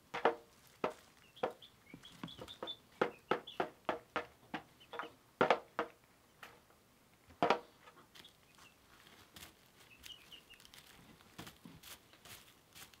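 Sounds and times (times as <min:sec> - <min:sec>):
chick pecking toy drum: 0:00.1 - 0:05.9
chick cheeping: 0:01.2 - 0:03.7, 0:09.8 - 0:10.9.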